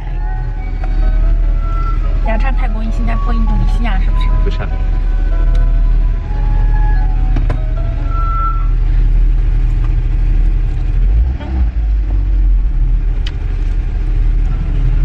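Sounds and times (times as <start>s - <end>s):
car engine rumble from inside: 0.0s - 15.0s.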